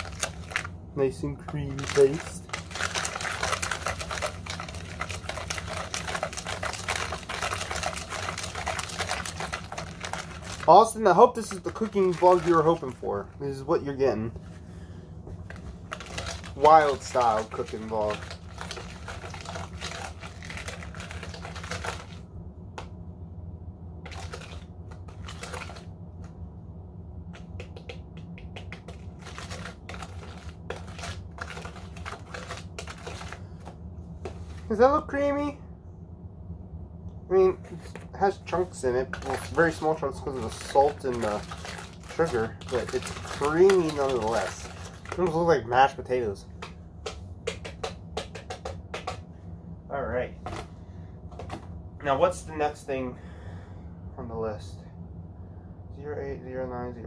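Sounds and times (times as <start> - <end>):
low steady hum: 0.0 - 57.0
whisk clicking against tub: 27.4 - 33.4, 39.1 - 45.5, 46.6 - 49.2
whisk striking plastic bowl: 46.6 - 49.2.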